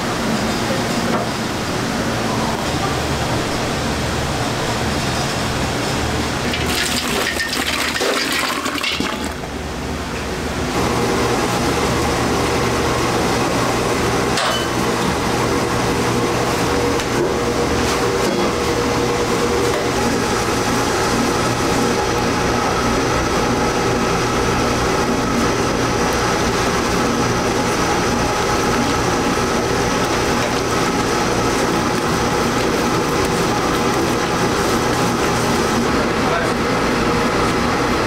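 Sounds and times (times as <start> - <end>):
dough mixer droning: 0.0 - 38.0
rushing water-like pour: 6.5 - 9.4.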